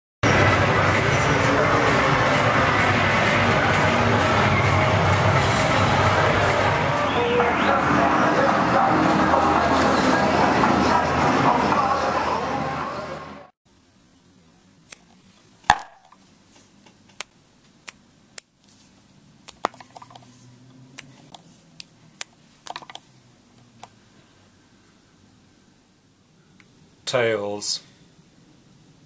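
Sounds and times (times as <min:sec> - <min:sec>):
opening music: 0:00.2 - 0:13.5
metal coin clinking: 0:14.9 - 0:16.2, 0:17.2 - 0:18.6, 0:19.5 - 0:20.3, 0:20.9 - 0:21.4, 0:22.2 - 0:23.0.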